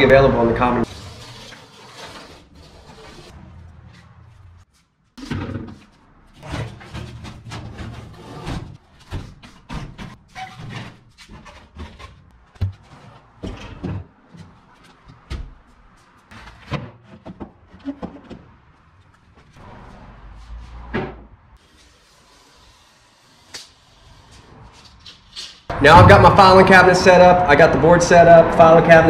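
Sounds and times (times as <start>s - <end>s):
metal cabinet clunking: 6.4s - 14.5s.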